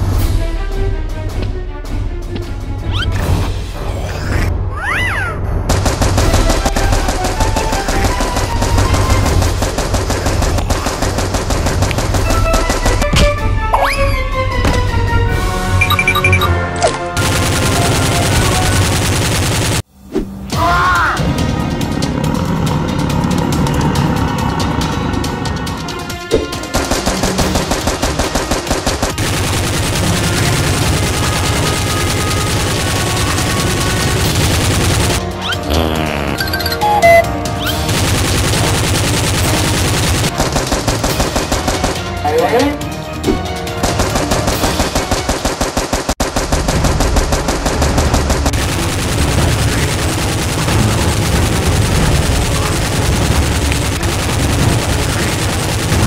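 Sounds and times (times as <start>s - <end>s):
automatic gunfire: 5.7s - 13.2s, 17.2s - 19.8s, 26.7s - 35.2s, 37.8s - 42.1s, 43.8s - 56.0s
automatic gunfire sound effect: 37.7s - 42.0s, 43.8s - 56.0s.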